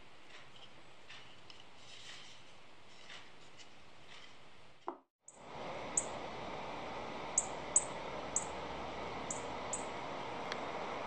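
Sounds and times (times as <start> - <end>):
high bird chirps: 7.4 - 8.6, 9.3 - 9.9.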